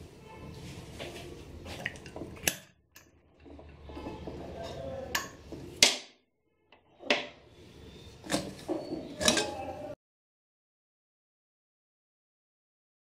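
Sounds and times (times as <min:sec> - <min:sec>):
pressure cooker lid scraping: 0:08.2 - 0:09.9.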